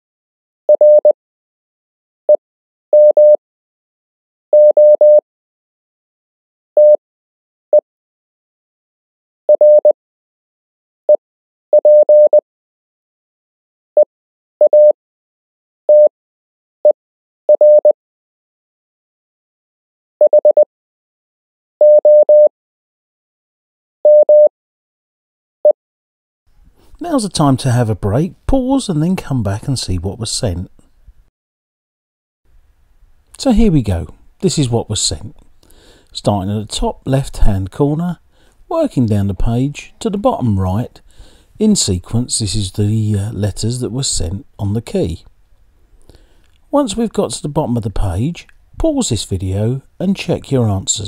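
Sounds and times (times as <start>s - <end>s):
morse code tone: 0.8s - 1.1s, 3.0s - 3.4s, 4.6s - 5.2s, 9.6s - 9.9s, 11.8s - 12.4s, 14.7s - 15.0s, 15.9s - 16.1s, 17.6s - 17.9s, 21.8s - 22.5s, 24.1s - 24.5s.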